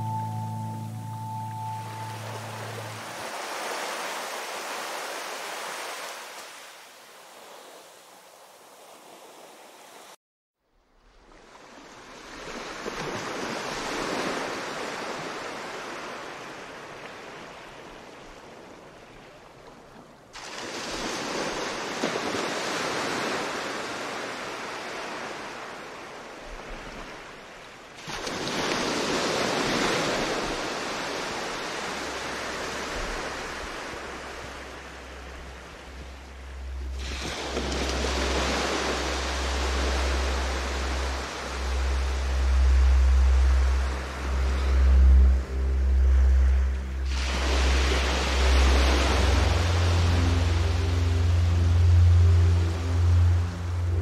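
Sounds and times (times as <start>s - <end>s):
ocean waves washing onto shore: 0.0s - 10.2s, 11.2s - 54.0s
low rumble: 34.6s - 54.0s.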